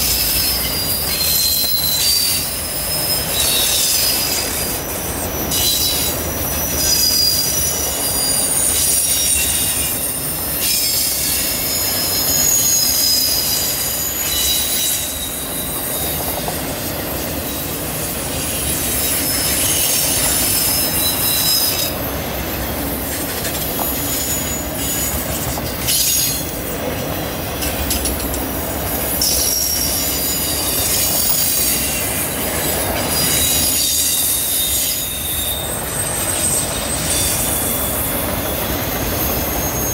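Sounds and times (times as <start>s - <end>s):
low rumble of wheels on track: 0.0s - 39.9s
train wheels squealing on rail: 0.0s - 39.9s.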